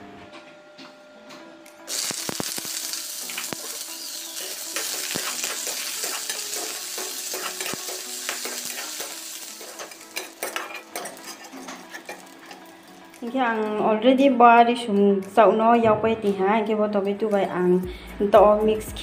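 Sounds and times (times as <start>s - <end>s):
onions sizzling in hot oil: 1.9s - 13.2s
metal skimmer scraping a pan: 3.3s - 12.7s.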